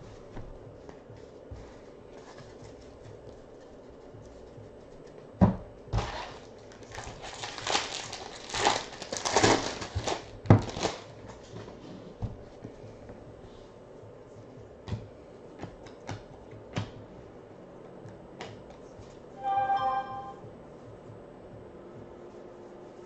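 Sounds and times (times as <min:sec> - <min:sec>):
foil wrapper tearing and crinkling: 0:06.0 - 0:11.1
sharp crack of foil: 0:06.1 - 0:11.1.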